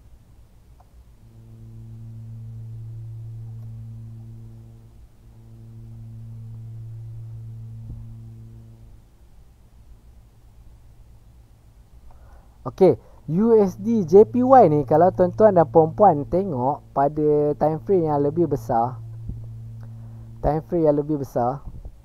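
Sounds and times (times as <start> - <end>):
man humming low note: 1.2 - 9.0, 12.7 - 21.9.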